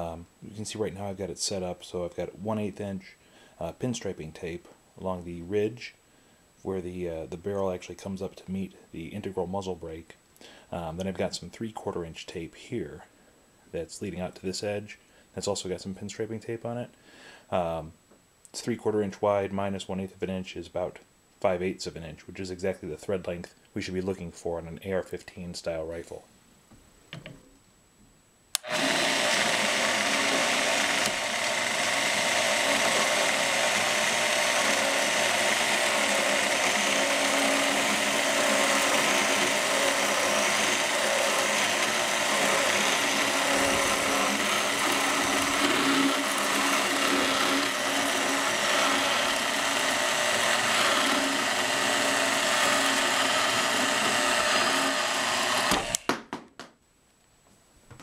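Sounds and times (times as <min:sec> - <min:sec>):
bandsaw cutting steel: 0:28.6 - 0:56.0.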